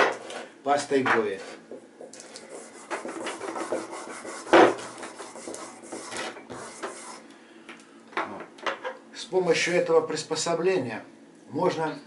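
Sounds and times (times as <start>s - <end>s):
knife rubbing on sharpening bar: 2.5s - 7.2s.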